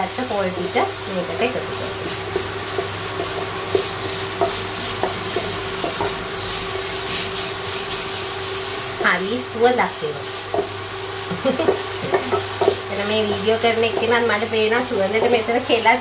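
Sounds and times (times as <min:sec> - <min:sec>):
light frying sizzle: 0:00.0 - 0:16.0
steady hum: 0:00.0 - 0:16.0
wooden spoon scraping a pot: 0:01.8 - 0:15.6
spoon knocking against pan: 0:02.3 - 0:06.2, 0:10.5 - 0:10.8, 0:11.6 - 0:14.2.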